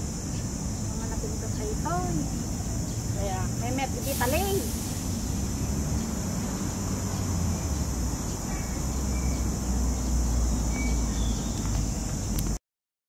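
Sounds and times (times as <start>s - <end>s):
steady high hiss: 0.0s - 12.6s
thin bird chirps: 4.2s - 12.4s.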